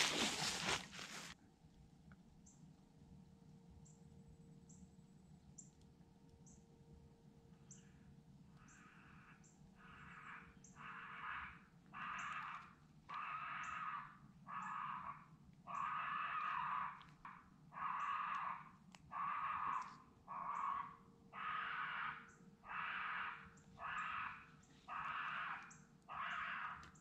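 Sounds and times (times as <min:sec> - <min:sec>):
raccoon squalling: 0:09.8 - 0:27.0.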